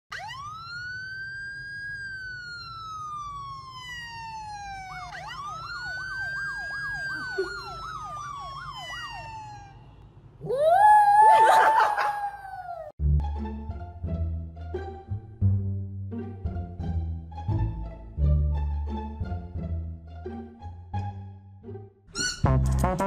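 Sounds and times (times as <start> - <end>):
siren-like wailing tone: 0.1 - 9.8
dog howling: 10.4 - 12.9.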